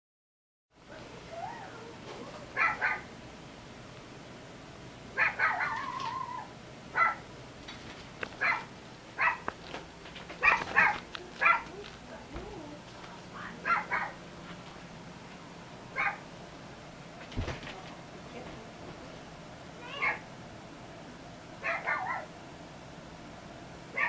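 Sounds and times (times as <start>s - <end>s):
animal yelping: 1.3s - 3.1s, 5.2s - 7.2s, 13.6s - 14.2s, 19.8s - 20.3s, 21.6s - 22.3s
animal whining: 5.2s - 7.2s, 19.8s - 20.2s.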